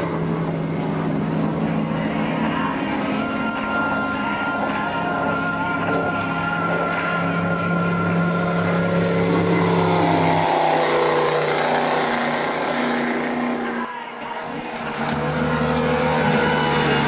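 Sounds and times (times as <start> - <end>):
racing boat engines: 0.0 - 17.0.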